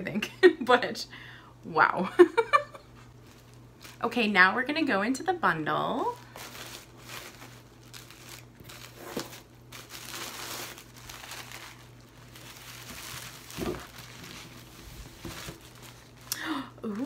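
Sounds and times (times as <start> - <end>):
tissue paper rustling: 3.2 - 4.2, 6.0 - 17.0.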